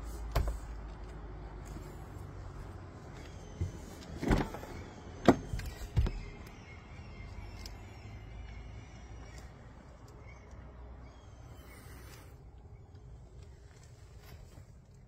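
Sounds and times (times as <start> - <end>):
car door unlatching and opening: 3.6 - 6.3.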